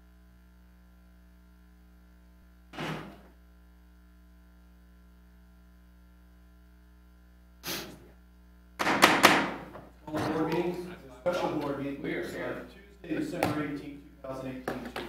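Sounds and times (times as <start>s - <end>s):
low electrical hum: 0.0s - 15.0s
short thud: 2.8s - 3.3s.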